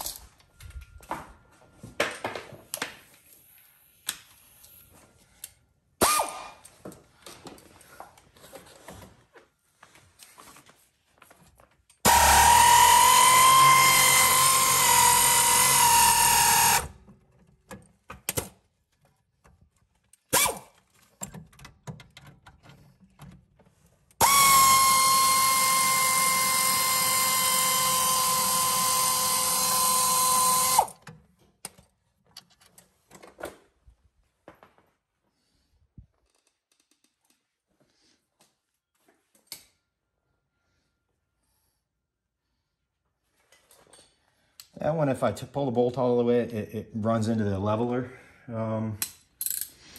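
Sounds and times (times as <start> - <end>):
power tool whining: 12.0 - 17.0, 24.2 - 31.0.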